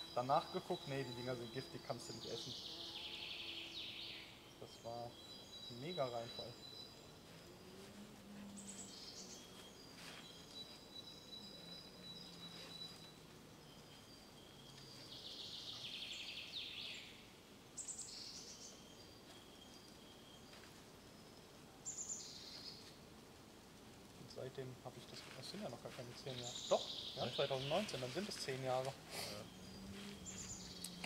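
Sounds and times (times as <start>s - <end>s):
faint low hum: 0.0s - 16.1s
birdsong whistles and trills: 0.0s - 23.0s, 25.2s - 31.0s.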